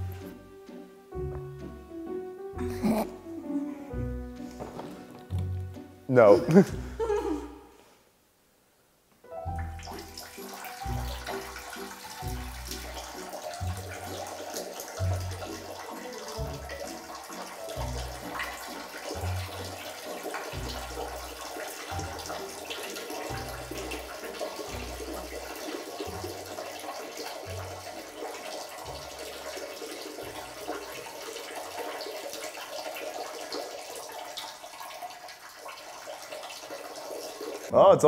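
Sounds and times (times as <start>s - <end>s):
running water hiss: 9.6s - 37.7s.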